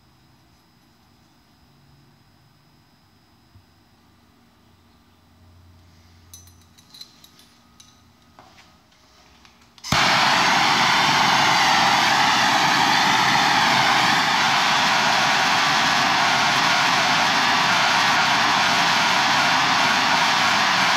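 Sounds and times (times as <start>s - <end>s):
gas torch hissing: 9.8s - 20.9s.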